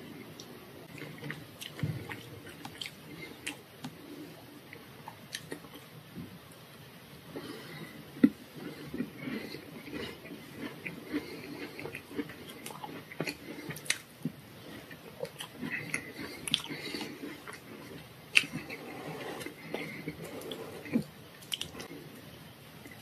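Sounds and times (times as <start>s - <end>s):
wet chewing: 8.6s - 18.8s
plastic fork scraping a tart: 17.3s - 21.1s.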